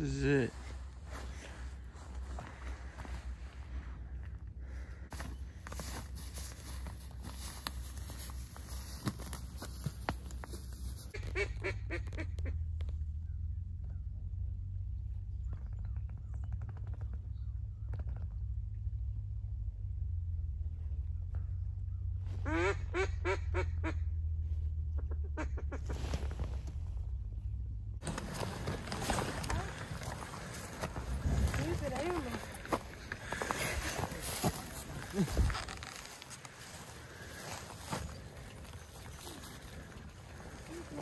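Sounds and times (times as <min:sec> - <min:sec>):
steady low rumble: 0:00.0 - 0:41.0
footsteps on frosty ground: 0:00.4 - 0:04.3, 0:05.1 - 0:11.8, 0:28.0 - 0:41.0
duck quacks: 0:11.1 - 0:12.6, 0:22.4 - 0:24.0, 0:25.0 - 0:26.0.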